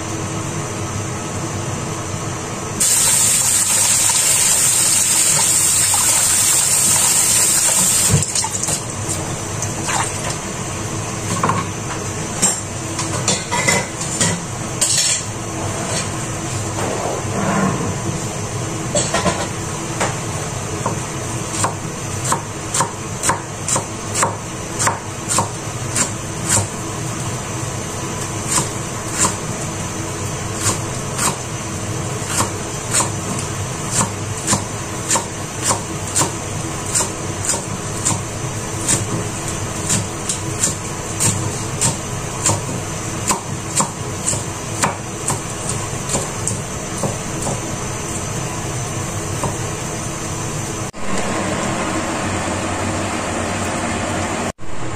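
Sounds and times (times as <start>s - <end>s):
knife chopping on wooden board: 21.6s - 26.7s, 33.9s - 38.2s, 39.9s - 47.6s.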